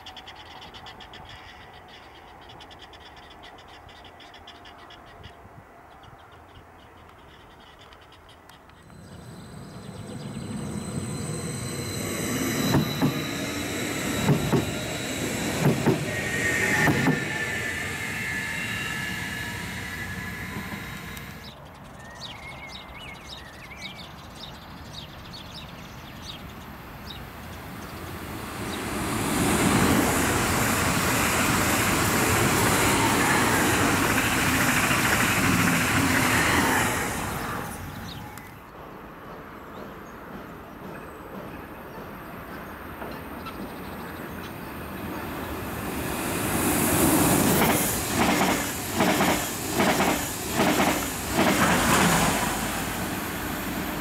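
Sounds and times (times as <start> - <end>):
high whining tones: 8.8 - 21.5, 27.3 - 38.6
train wheels rushing on rails: 8.8 - 21.6, 25.6 - 54.0.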